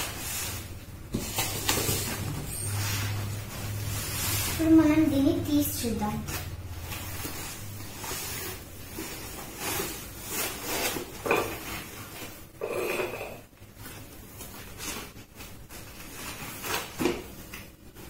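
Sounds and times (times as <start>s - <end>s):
foam sheet rustling: 0.0s - 12.5s, 13.7s - 18.0s.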